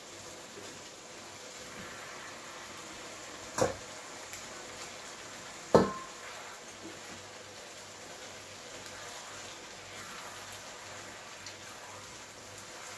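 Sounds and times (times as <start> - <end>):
food sizzling in a pan: 0.0 - 12.9
utensil clanking on cookware: 5.7 - 6.2.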